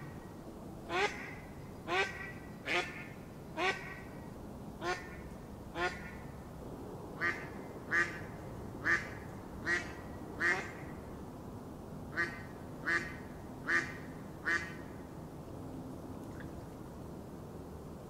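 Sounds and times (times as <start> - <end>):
duck quacking: 0.9 - 4.0, 5.8 - 6.2.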